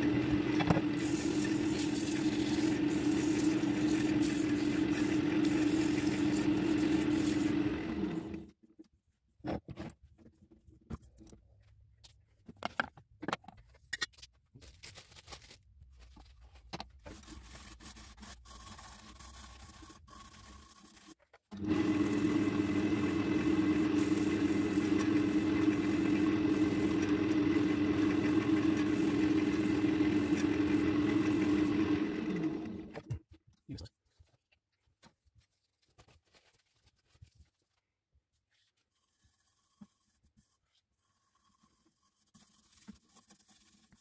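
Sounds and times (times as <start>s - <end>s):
power tool motor whining: 0.0s - 8.5s, 21.6s - 33.0s.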